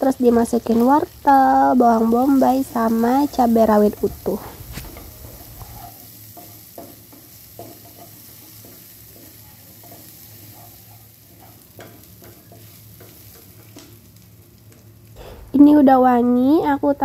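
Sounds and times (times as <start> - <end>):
vegetables sizzling in oil: 0.0 - 17.0
wooden spatula scraping pan: 2.0 - 13.7
spatula knocking against pan: 6.4 - 13.9.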